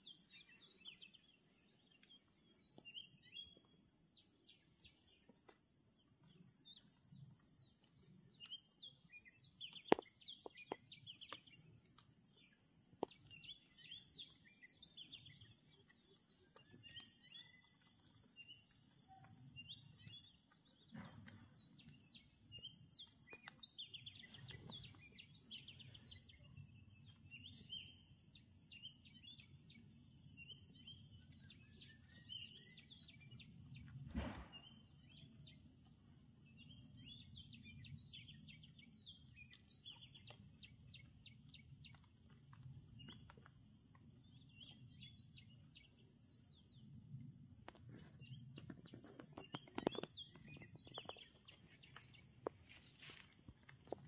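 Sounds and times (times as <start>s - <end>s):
bird chirps and twitters: 6.3s - 11.8s, 12.4s - 35.7s, 44.2s - 46.9s, 47.8s - 54.0s.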